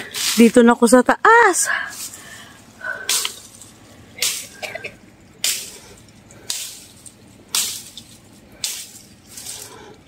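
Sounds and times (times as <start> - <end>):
footsteps through dry grass: 1.8 - 4.6, 5.4 - 9.9.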